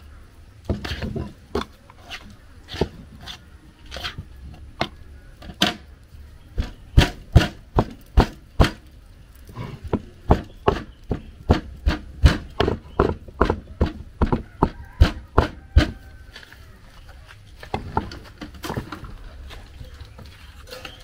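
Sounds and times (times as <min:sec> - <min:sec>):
heavy knocks of food preparation: 0:00.6 - 0:01.8, 0:06.5 - 0:08.9, 0:09.6 - 0:16.0, 0:17.6 - 0:19.2.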